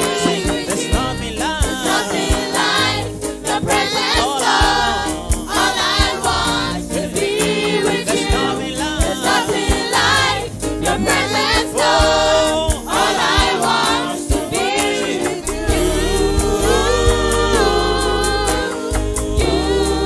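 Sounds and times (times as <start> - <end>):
gospel choir singing with band: 0.0 - 20.0.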